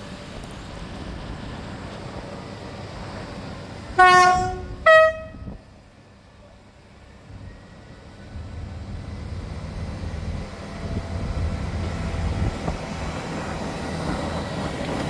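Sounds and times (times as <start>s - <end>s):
train rumble: 0.0s - 15.0s
train two-tone horn: 4.0s - 5.6s.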